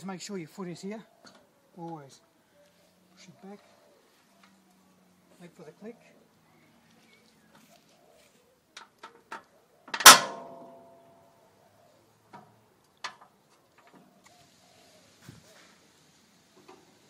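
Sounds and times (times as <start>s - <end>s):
loud metal clank: 10.0s - 11.0s.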